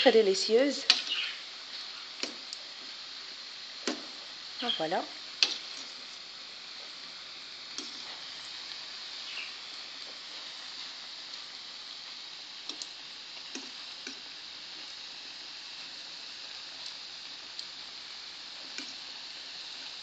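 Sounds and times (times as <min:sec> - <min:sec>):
dough deep-frying in oil: 0:00.0 - 0:20.0
metal fork clicking on pan: 0:00.9 - 0:01.1.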